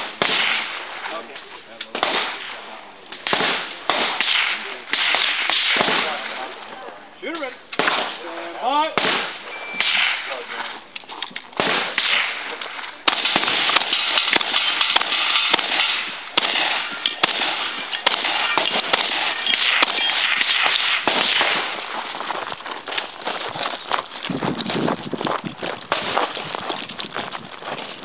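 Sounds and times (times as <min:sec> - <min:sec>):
shotgun shots: 0:00.0 - 0:06.6, 0:07.7 - 0:10.7, 0:11.6 - 0:22.0, 0:25.9 - 0:26.4.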